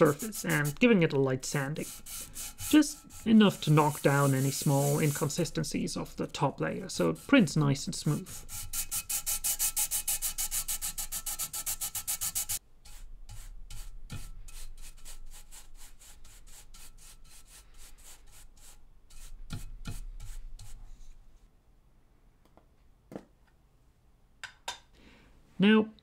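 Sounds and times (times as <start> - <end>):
sanding stick rasping on plastic: 0.0 - 6.2, 6.8 - 20.8
brush sweeping over plate: 0.0 - 21.2.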